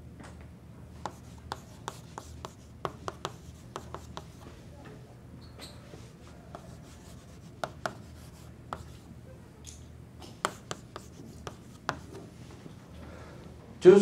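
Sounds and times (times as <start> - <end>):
low steady hum: 0.0 - 14.0
chalk scratching on blackboard: 1.0 - 4.4, 6.5 - 9.0, 10.4 - 12.2
chalk tapping on board: 1.0 - 4.4, 6.5 - 9.0, 10.3 - 12.2.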